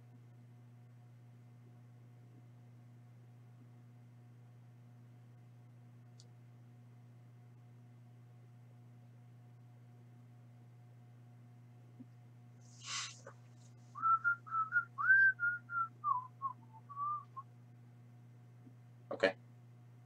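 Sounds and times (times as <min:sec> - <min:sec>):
person whistling a tune: 0:14.0 - 0:17.4.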